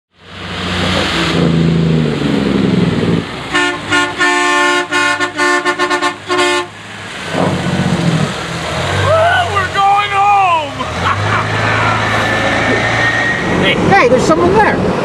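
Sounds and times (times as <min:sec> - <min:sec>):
motorhome engine running: 0:00.2 - 0:15.0
vehicle horn honking: 0:03.5 - 0:06.8.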